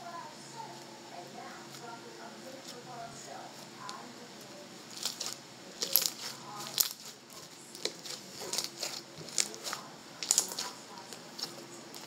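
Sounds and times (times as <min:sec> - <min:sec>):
slime clicking and popping: 0:05.0 - 0:07.1, 0:07.7 - 0:10.8.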